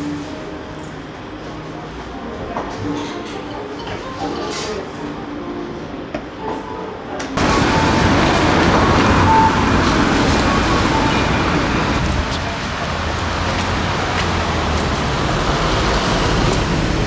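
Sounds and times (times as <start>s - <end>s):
road traffic rumble: 7.4s - 17.0s.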